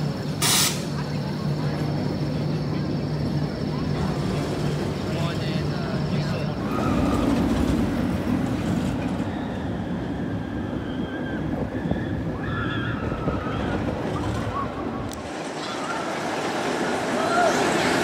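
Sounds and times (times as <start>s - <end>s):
roller coaster rumbling past: 0.0s - 18.0s
wind noise on microphone: 7.3s - 15.2s.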